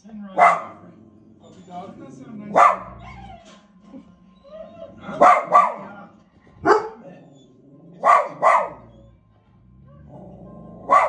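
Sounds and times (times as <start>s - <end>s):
dog barking: 0.4s - 0.9s, 2.4s - 3.2s, 5.0s - 9.1s, 9.9s - 11.0s.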